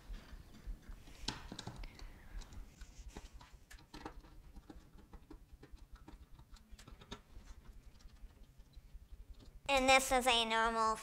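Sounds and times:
small plastic and metal clicks: 3.7 - 7.3.

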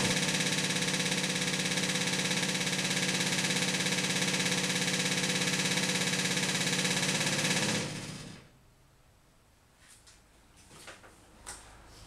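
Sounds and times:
electric fuel pump ticking: 0.0 - 7.8.

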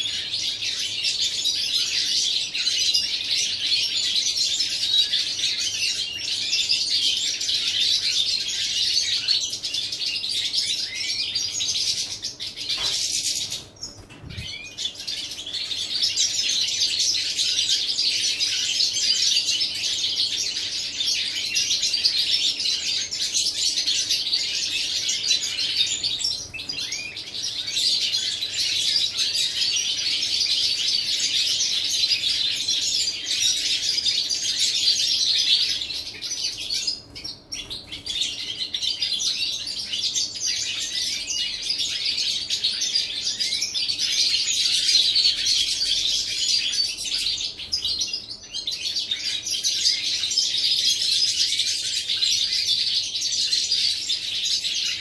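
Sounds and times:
goldfinches singing and twittering: 0.0 - 55.0.

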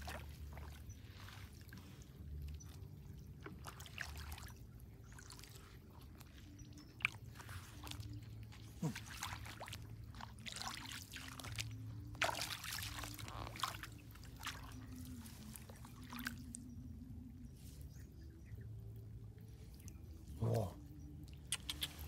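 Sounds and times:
footsteps splashing through water: 0.0 - 16.7.

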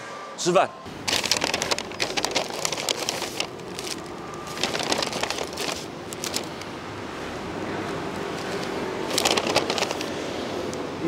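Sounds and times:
paper bags rustling: 1.0 - 6.7, 8.4 - 10.2.

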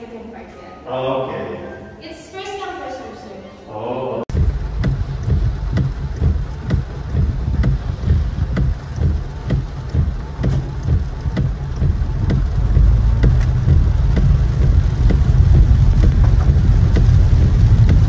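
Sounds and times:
low car rumble: 4.3 - 18.0
rain pattering on car roof: 4.3 - 18.0.

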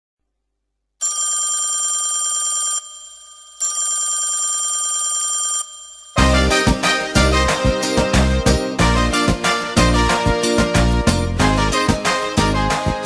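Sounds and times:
telephone ringing: 1.0 - 6.3
music: 6.2 - 13.0.

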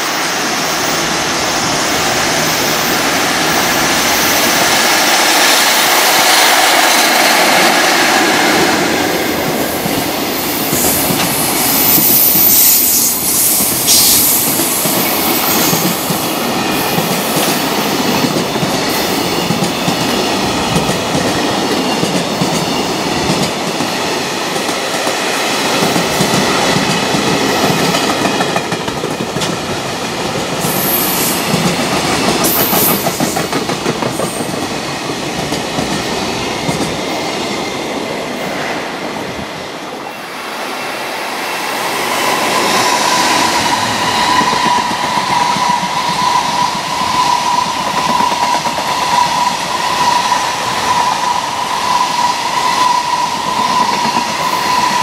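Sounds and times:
freight train wheels clattering: 13.5 - 37.8.

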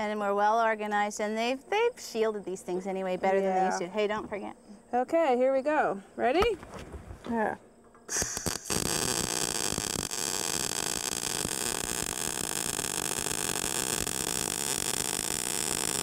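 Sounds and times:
welding arc: 8.1 - 16.0.

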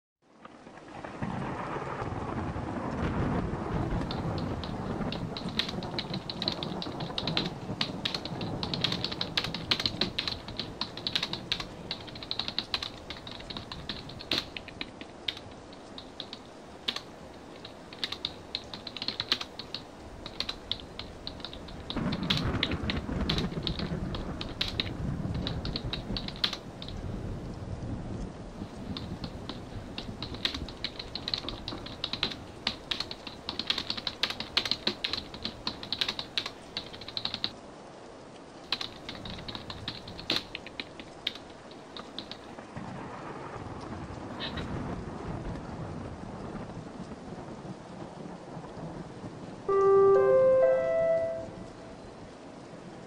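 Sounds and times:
typing on keyboard: 4.0 - 27.0, 28.8 - 37.5, 38.7 - 42.5.

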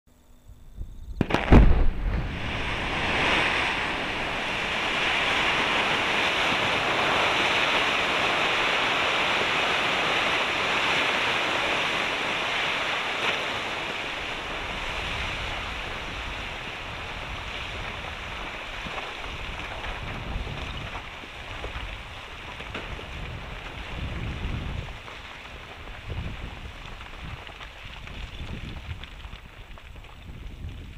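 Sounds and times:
low rumbles: 0.7 - 7.0
rock blast bang: 1.2 - 6.3
rock and gravel rushing down: 1.2 - 30.9.

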